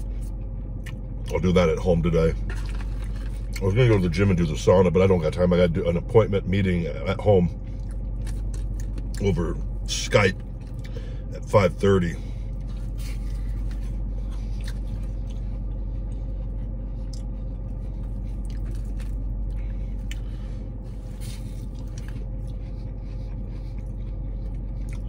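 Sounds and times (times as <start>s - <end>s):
low hum in car cabin: 0.0s - 25.0s
crunchy food chewing: 2.4s - 4.2s, 7.6s - 11.0s, 12.4s - 25.0s.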